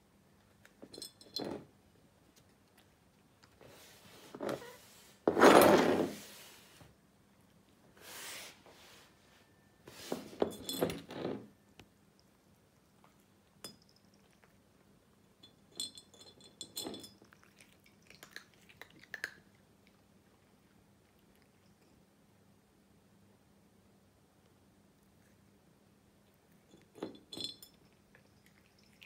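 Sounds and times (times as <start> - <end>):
glass jar clinking and rattling: 0.8 - 1.7, 10.4 - 11.3, 15.4 - 17.4, 26.7 - 29.0.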